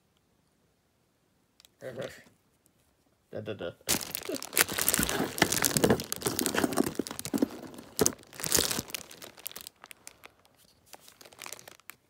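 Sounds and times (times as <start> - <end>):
packaging crinkling: 3.9 - 12.0.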